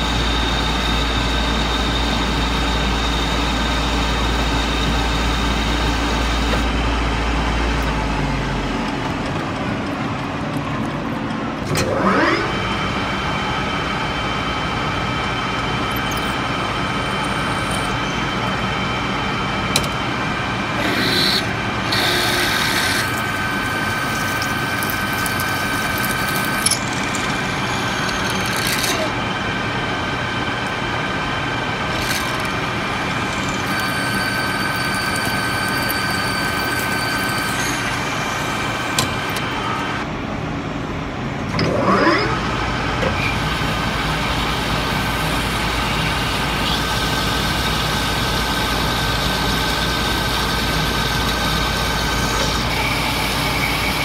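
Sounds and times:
metal lathe whining: 11.8 - 40.1, 41.6 - 54.0
loud scraping cut: 20.8 - 23.7
tool cutting steel: 20.8 - 29.2, 31.9 - 39.5.

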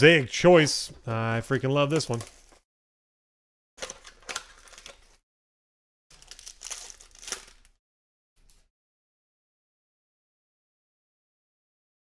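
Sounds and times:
foil wrapper crinkling and tearing: 3.8 - 5.2, 6.1 - 7.8.

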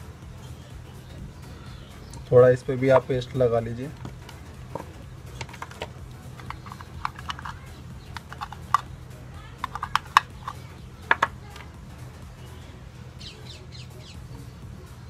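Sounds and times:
steady low hum: 0.0 - 15.0
tools clicking on wooden bench: 4.0 - 8.8, 9.6 - 11.6.

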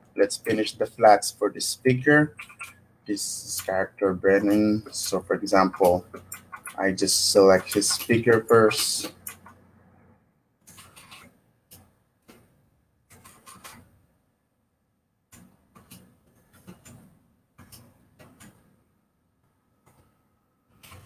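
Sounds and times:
mouse and keyboard clicking: 2.3 - 2.8, 4.4 - 9.6.

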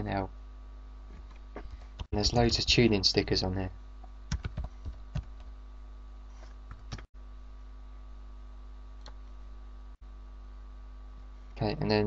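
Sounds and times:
low electrical hum: 0.0 - 12.0
keyboard and mouse clicks: 6.7 - 7.1.

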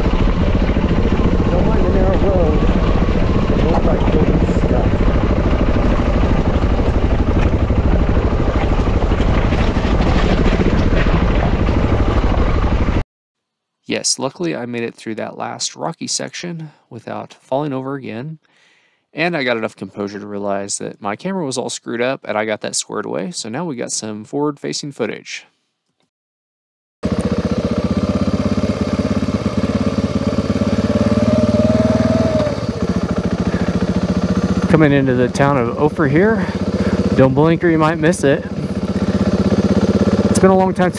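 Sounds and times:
motorcycle engine running: 0.0 - 13.0, 27.0 - 40.9.

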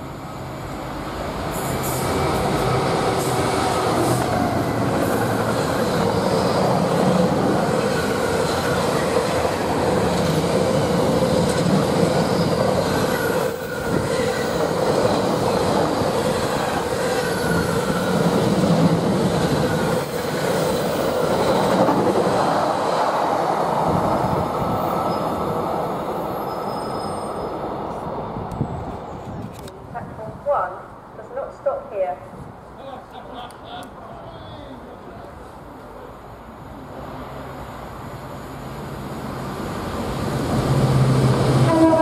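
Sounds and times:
diesel locomotive passing: 0.0 - 32.8, 34.8 - 42.0
faint wheel squeal: 26.4 - 27.6.

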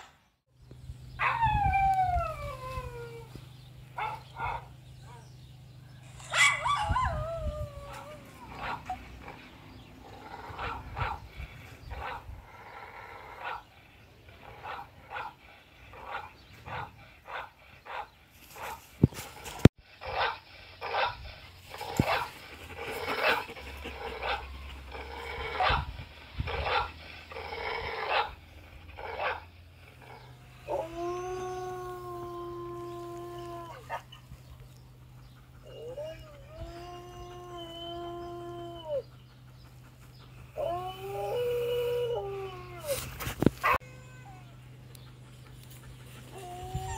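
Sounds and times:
recorded dog howl: 1.2 - 3.4, 6.2 - 9.0, 30.1 - 34.2, 35.6 - 39.1, 40.6 - 43.0, 46.3 - 46.9
recorded dog barks: 25.6 - 25.9, 29.1 - 29.4.

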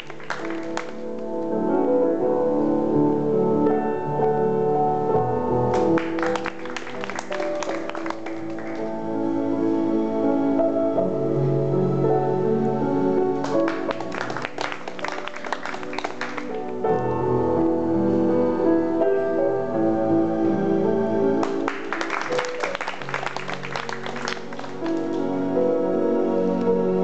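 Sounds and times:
audience applause: 0.0 - 1.0, 5.7 - 8.9, 13.4 - 16.6, 21.4 - 25.3
slow piano music: 0.0 - 27.0.

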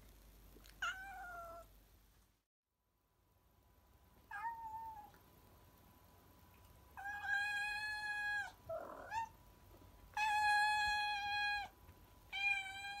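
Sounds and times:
cat meowing: 0.8 - 1.7, 4.3 - 5.2, 7.0 - 9.4, 12.3 - 13.0.

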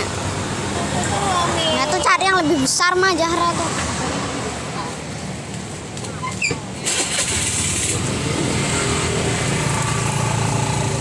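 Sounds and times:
vehicle engine running: 7.1 - 11.0.

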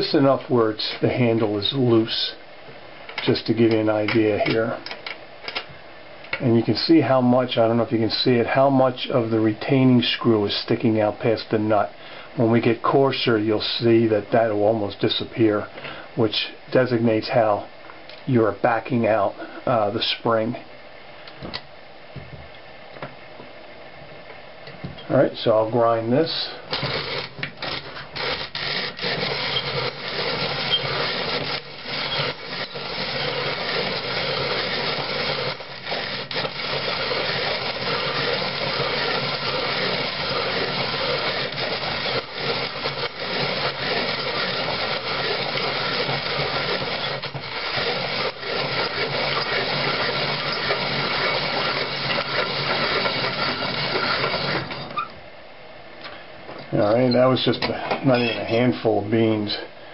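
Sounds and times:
hand-cranked coffee grinder grinding: 26.7 - 55.1.

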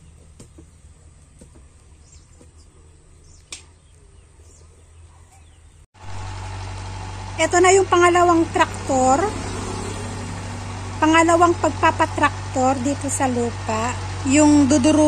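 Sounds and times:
tractor engine running: 6.0 - 15.0.

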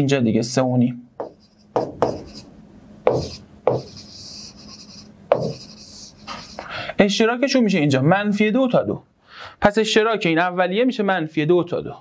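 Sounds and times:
stylus tapping on glass: 1.2 - 2.3.

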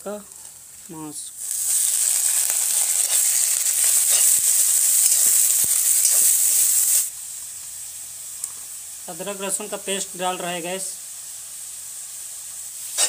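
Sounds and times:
meat sizzling in hot oil: 0.3 - 13.0
steel spatula clicking and scraping: 1.7 - 6.3.

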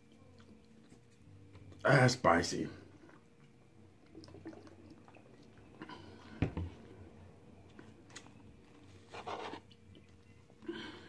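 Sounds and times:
bottle set down on table: 6.4 - 6.7.

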